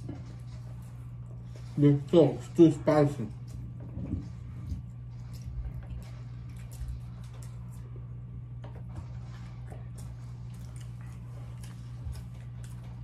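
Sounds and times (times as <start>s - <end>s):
people eating with hands: 0.0s - 13.0s
steady low hum: 0.0s - 13.0s.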